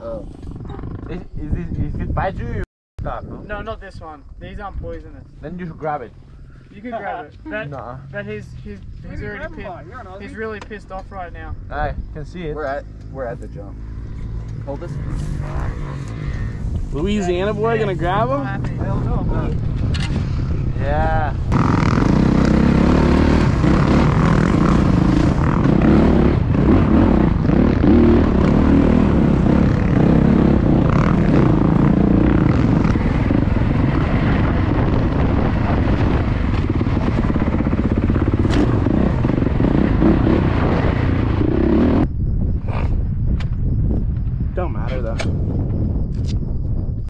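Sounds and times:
dirt bike engine revving: 12.1s - 20.8s, 21.4s - 42.1s.

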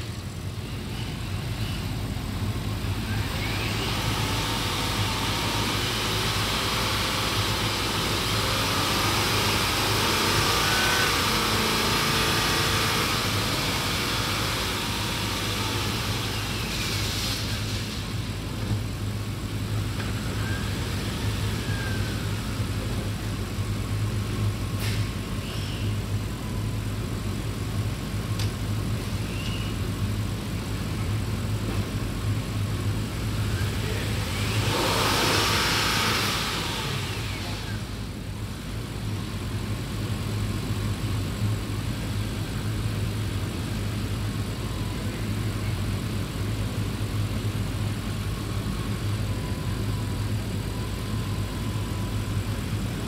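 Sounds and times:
car engine hum: 0.0s - 24.7s
drivetrain whine: 0.0s - 53.0s.

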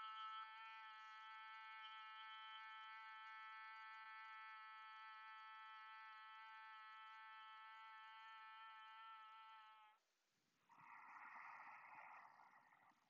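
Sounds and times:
person humming steady pitch: 0.0s - 9.9s.

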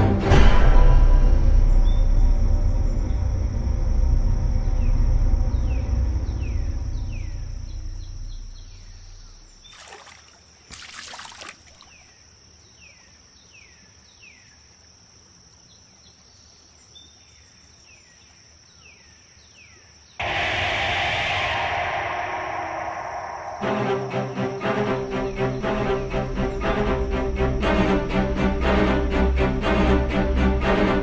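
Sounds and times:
low musical drone: 0.0s - 9.2s, 20.2s - 31.0s
high insect drone: 1.2s - 16.0s, 20.2s - 31.0s
water splashing on face: 9.6s - 12.1s
descending bird chirps: 20.2s - 28.3s.

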